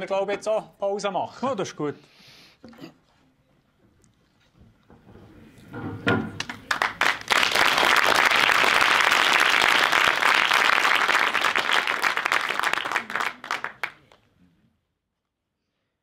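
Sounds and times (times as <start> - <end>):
crowd applauding: 6.4 - 14.2.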